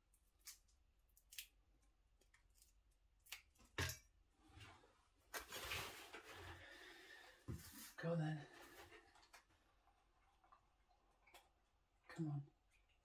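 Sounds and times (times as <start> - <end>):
chicken being torn apart: 0.2 - 1.6.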